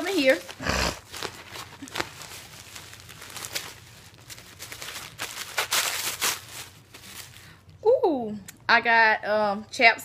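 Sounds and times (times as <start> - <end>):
packaging crinkling and rustling: 0.0 - 7.6.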